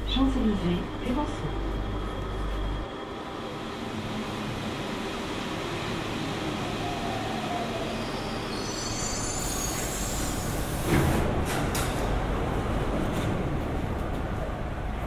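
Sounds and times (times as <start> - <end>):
train rumble: 0.0 - 15.0
high wheel squeal: 7.7 - 10.7.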